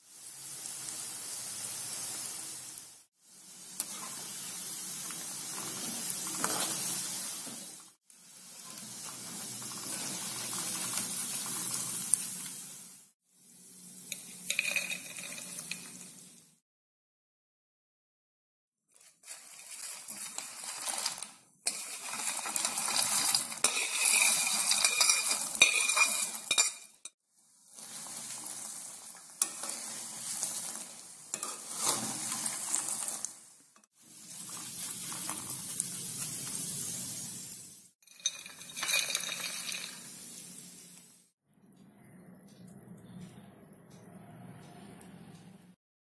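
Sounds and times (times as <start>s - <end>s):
nuts sizzling in hot oil: 0.0s - 16.6s, 19.0s - 41.3s
metal spatula clinking against pan: 23.6s - 27.0s.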